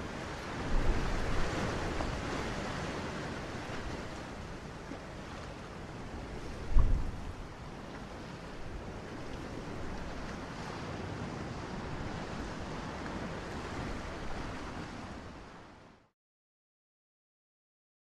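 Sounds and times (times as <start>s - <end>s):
wind on microphone: 0.0s - 2.8s, 6.1s - 7.6s.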